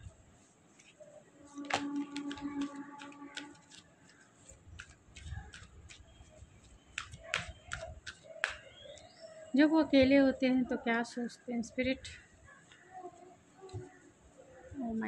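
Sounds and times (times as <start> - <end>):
cards being shuffled: 0.7 - 9.0.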